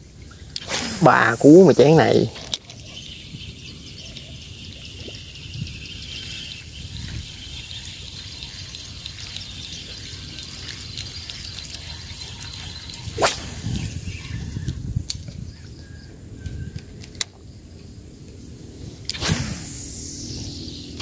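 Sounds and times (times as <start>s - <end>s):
fishing rod whoosh: 0.6s - 2.4s, 13.1s - 14.2s, 19.0s - 21.0s
water drips and splashes: 7.6s - 12.5s.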